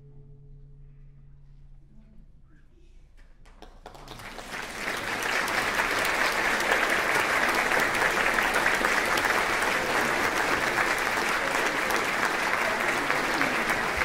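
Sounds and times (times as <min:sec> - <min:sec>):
audience applauding: 0:03.5 - 0:14.0.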